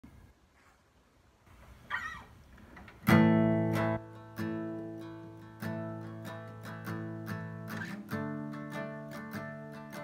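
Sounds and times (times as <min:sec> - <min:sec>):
short guitar squeak: 0:01.9 - 0:02.4
guitar handling: 0:02.5 - 0:10.0.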